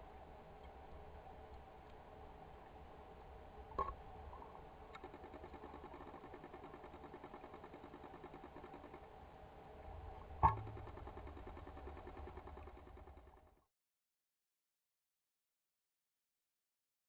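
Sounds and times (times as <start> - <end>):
sharp clicks: 4.9 - 9.0
soft fast ticking: 4.9 - 9.2, 10.4 - 13.5.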